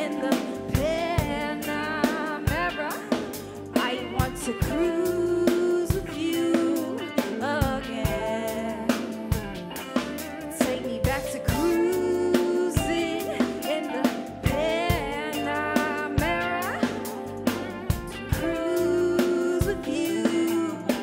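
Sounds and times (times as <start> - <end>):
bass: 0.0 - 21.0
drum kit steady beat: 0.0 - 21.0
electric guitar: 0.0 - 21.0
keyboard: 0.0 - 21.0
woman singing vocal runs: 0.0 - 21.0.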